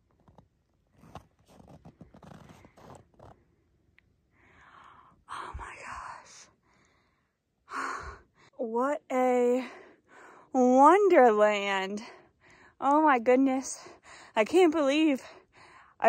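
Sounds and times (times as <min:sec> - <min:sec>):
person breathing: 0:04.3 - 0:05.6.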